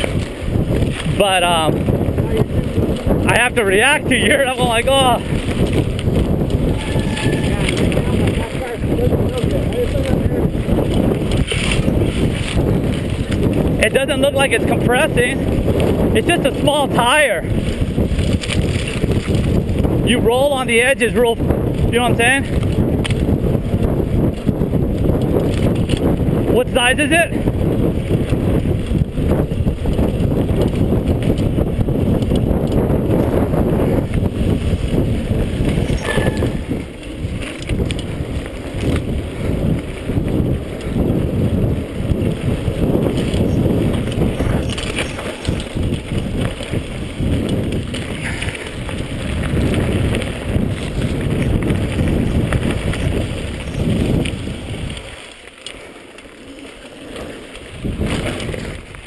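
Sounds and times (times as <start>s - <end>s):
tyres rolling on dirt: 0.0s - 59.0s
wind buffeting microphone: 0.0s - 59.0s
bike knocks and rattles: 27.7s - 55.0s, 57.2s - 59.0s.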